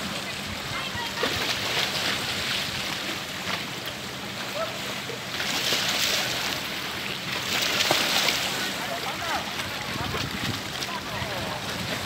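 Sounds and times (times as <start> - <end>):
waves washing against rocks: 5.3 - 12.0.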